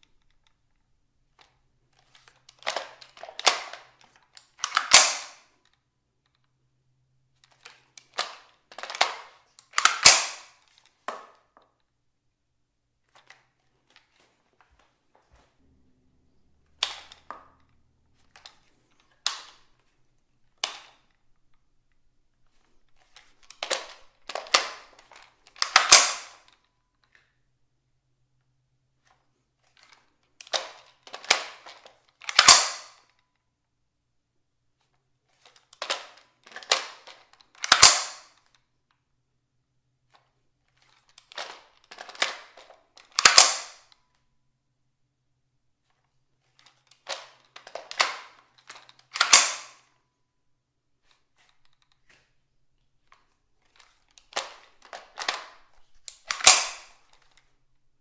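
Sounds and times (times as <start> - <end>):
rifle magazine and bolt clicks: 1.4 - 6.4, 7.4 - 11.8, 16.8 - 19.7, 22.9 - 27.3, 29.8 - 33.2, 35.4 - 38.6, 40.8 - 44.0, 46.6 - 50.0, 53.1 - 57.6.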